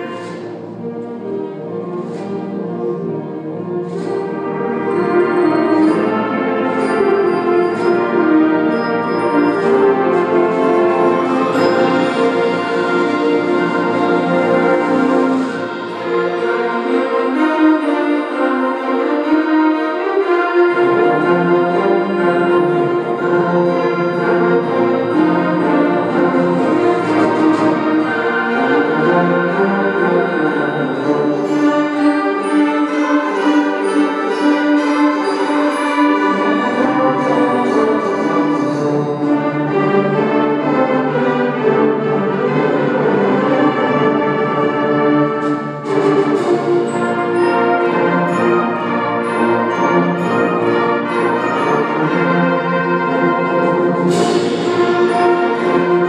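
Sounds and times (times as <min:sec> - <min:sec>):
band playing sustained chords: 0:00.0 - 0:42.2.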